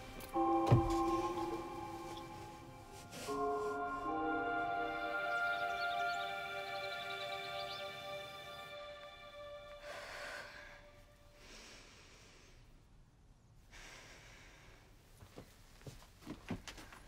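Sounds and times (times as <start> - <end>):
synth music chord: 0.0 - 11.3
girl breathing slowly: 9.8 - 12.7, 13.7 - 15.1.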